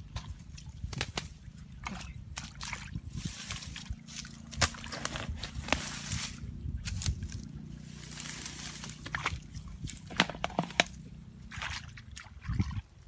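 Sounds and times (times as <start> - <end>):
digging tool chopping wet mud: 0.0 - 6.3, 8.2 - 12.7
grass and leaves rustling: 0.0 - 12.4
squelches in muddy water: 0.0 - 13.0.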